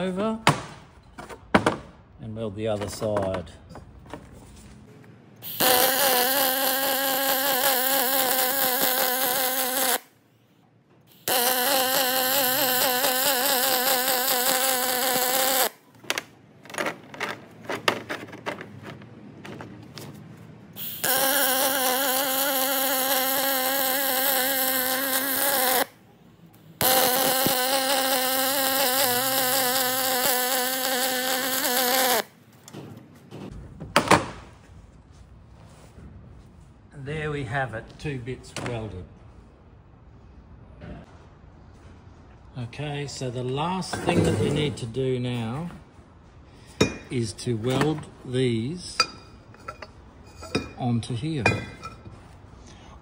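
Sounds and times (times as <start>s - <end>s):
welder arc buzzing: 5.4s - 10.1s, 11.1s - 15.8s, 20.8s - 26.0s, 26.7s - 32.4s
welding arc crackles: 5.4s - 10.1s, 11.1s - 15.8s, 20.8s - 25.9s, 26.8s - 32.3s.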